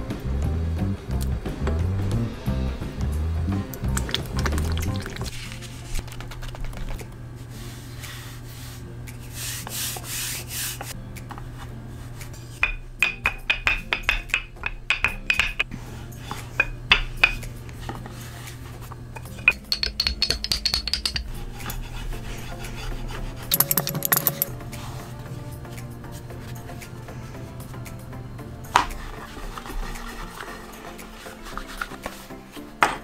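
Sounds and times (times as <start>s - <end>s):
rolling pin rolling pastry: 7.4s - 12.8s, 28.8s - 32.6s
hand brushing flour on wood: 7.5s - 11.0s
rolling pin knocking on wood: 12.6s - 15.6s, 19.5s - 21.3s.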